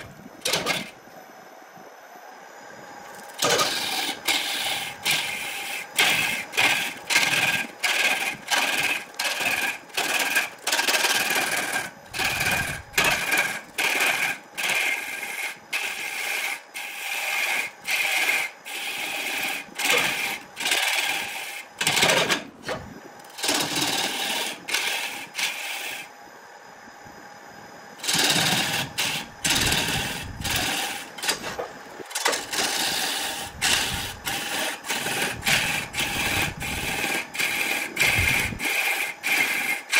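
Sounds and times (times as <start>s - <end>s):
lathe motor humming: 3.4s - 22.0s, 22.8s - 26.1s, 28.0s - 39.9s
turning tool scraping wood: 3.4s - 22.1s, 28.0s - 39.9s.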